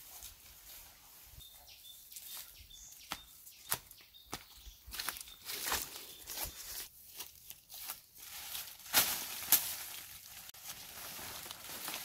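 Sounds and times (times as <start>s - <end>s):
dry leaves crunching and rustling: 4.9s - 12.0s.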